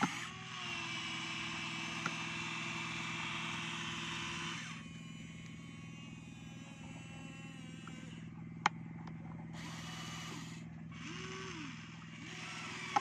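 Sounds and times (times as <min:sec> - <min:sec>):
electric motors whirring: 0:00.0 - 0:13.0.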